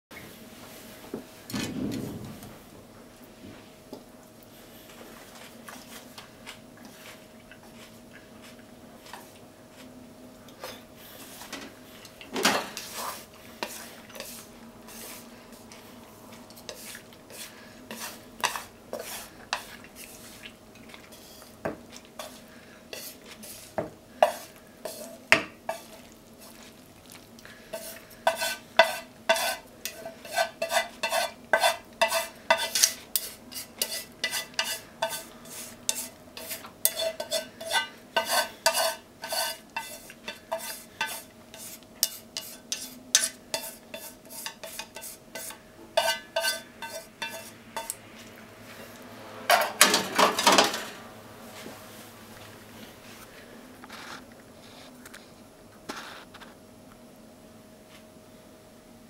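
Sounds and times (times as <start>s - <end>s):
utensil scraping a frying pan: 10.6s - 15.8s, 16.4s - 26.8s, 27.6s - 48.0s.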